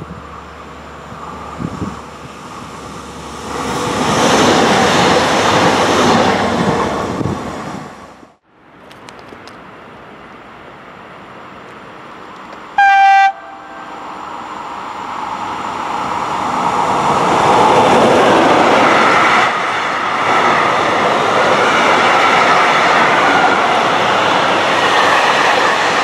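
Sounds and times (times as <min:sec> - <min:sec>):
train passing: 0:00.0 - 0:26.0
train horn blast: 0:12.8 - 0:14.1.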